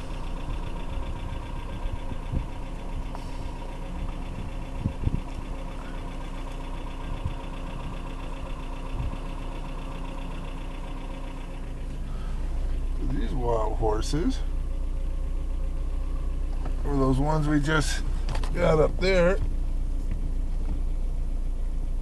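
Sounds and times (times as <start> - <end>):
short low thumps: 0.0 - 5.9
car engine humming: 0.0 - 22.0.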